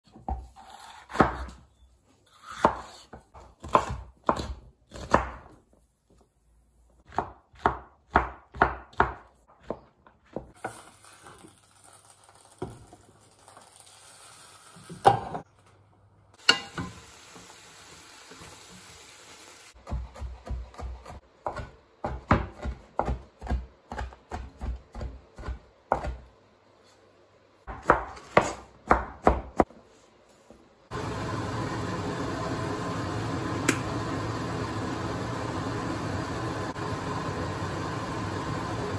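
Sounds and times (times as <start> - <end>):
knife chopping on wooden board: 0.2 - 1.6, 2.4 - 5.6, 7.1 - 10.6, 19.8 - 26.2, 27.7 - 29.7.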